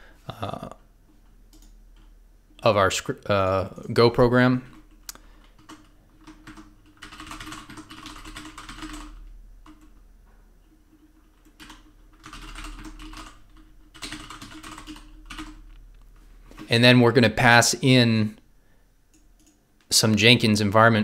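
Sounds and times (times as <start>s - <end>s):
typing on computer keyboard: 4.7s - 10.0s, 10.9s - 15.7s, 19.1s - 19.6s.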